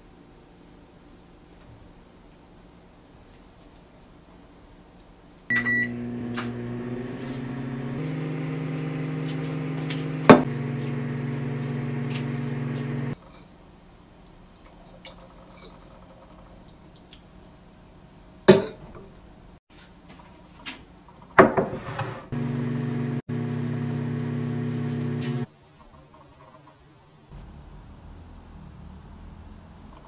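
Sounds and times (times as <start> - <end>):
microwave oven beep: 5.5 - 13.1
microwave oven humming: 5.5 - 13.2, 22.0 - 25.5.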